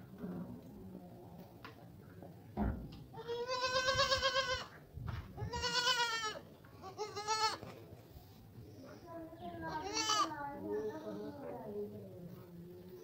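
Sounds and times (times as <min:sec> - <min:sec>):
goat kid bleating: 0:03.2 - 0:04.7, 0:05.4 - 0:07.7, 0:09.7 - 0:10.3.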